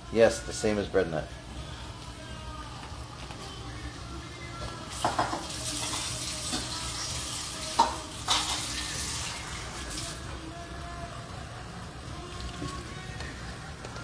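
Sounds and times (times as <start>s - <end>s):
pan sizzling: 4.6s - 10.3s
spoon knocking against pan: 5.0s - 5.4s.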